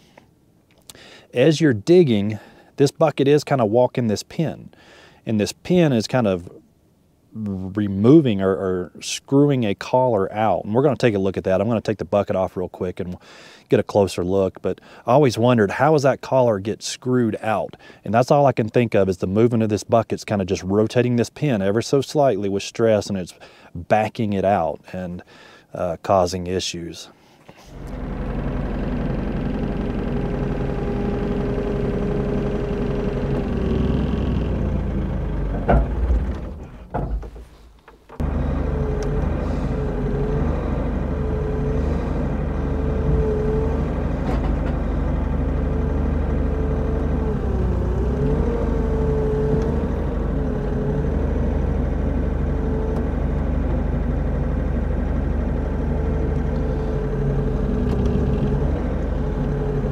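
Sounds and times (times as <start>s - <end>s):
hydraulic whine: 27.6s - 37.5s, 38.1s - 59.9s
excavator diesel engine running: 27.7s - 37.0s, 38.2s - 59.9s.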